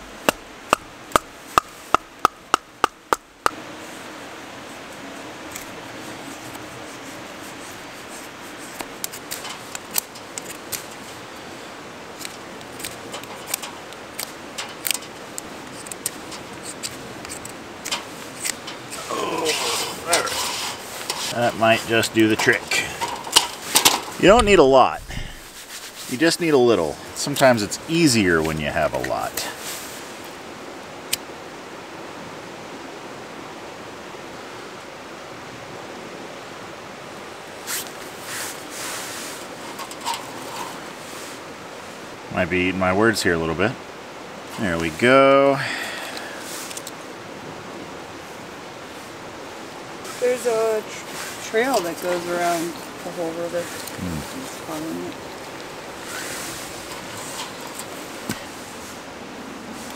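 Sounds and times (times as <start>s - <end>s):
river rushing: 0.0s - 59.9s
steady background hiss: 0.0s - 59.9s
kindling clicking and snapping: 12.2s - 19.0s.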